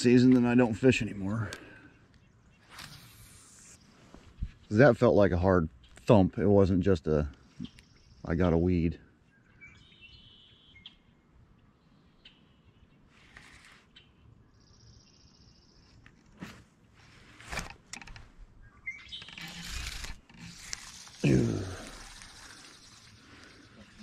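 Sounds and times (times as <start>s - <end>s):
small birds trilling: 7.4s - 16.1s, 18.6s - 24.0s.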